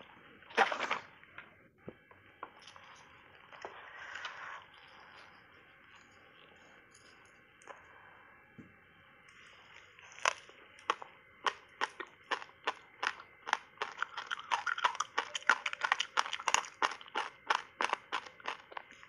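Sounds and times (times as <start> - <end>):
ice crunching being chewed: 2.5 - 7.9, 9.3 - 19.0.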